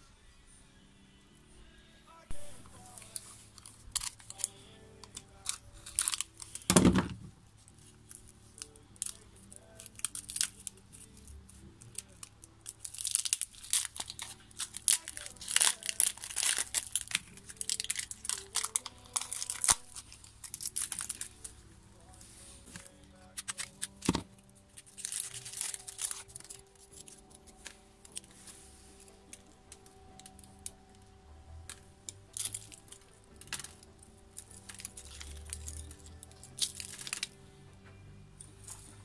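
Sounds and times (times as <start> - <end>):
faint background music: 0.0 - 39.0
tape being peeled and torn: 2.3 - 37.6.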